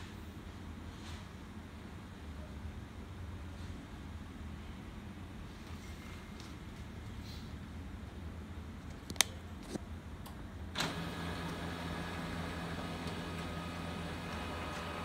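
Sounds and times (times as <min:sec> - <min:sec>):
printer motors and fan humming: 0:09.6 - 0:15.0
printer click: 0:10.8 - 0:15.0.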